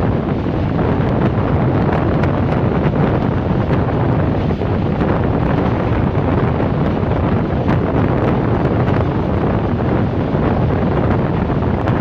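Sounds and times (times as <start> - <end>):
train rumbling at speed: 0.0 - 12.0
wind buffeting microphone: 0.0 - 12.0.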